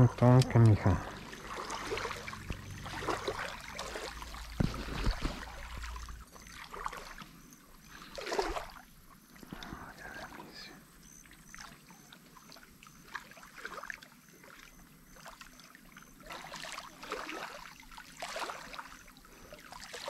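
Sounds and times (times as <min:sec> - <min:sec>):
water sloshing at shoreline: 0:00.0 - 0:20.0
swishing water splash: 0:01.0 - 0:07.3, 0:08.0 - 0:08.9, 0:12.4 - 0:20.0
knocks and rustles handling fish: 0:04.2 - 0:06.0.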